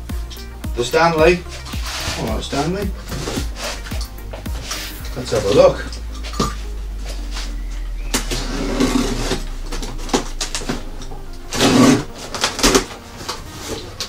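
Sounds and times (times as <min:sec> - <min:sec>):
cardboard flaps scraping and rustling: 0:01.5 - 0:03.9, 0:08.2 - 0:14.0.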